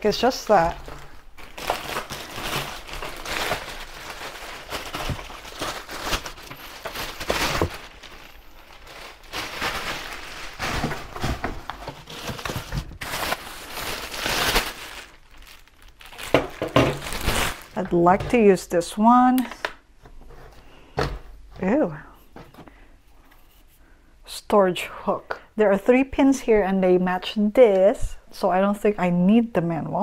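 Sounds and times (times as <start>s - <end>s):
plastic bags crinkling: 0.0s - 18.4s.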